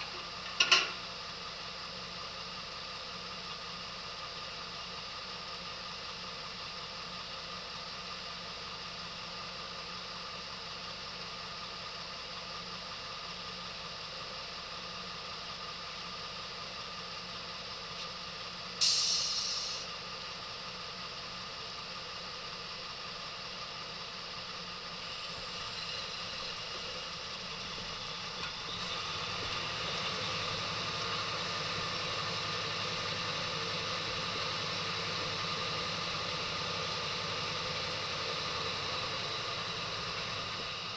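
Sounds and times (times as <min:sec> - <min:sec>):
diesel engine idling: 0:00.0 - 0:40.9
second engine running: 0:15.5 - 0:40.9
hiss of released air: 0:18.8 - 0:19.9.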